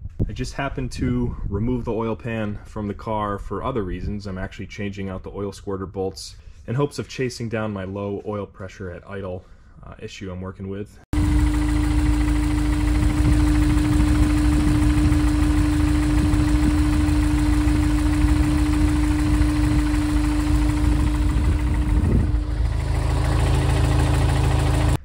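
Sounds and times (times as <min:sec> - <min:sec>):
car engine idling: 0:11.2 - 0:25.0
faint engine knocking: 0:11.2 - 0:25.0
steady tone: 0:11.2 - 0:25.0.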